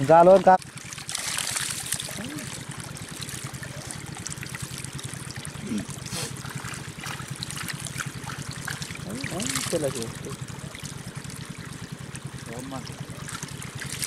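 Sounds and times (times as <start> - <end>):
water trickling through a channel: 0.0 - 14.0.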